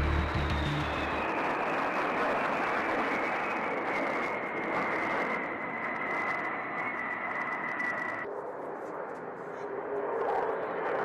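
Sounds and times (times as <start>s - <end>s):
jet engines flying overhead: 0.0s - 11.0s.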